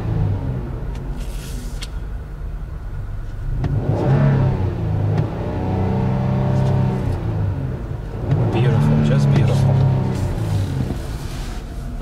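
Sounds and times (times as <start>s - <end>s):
car engine revving: 3.4s - 12.0s.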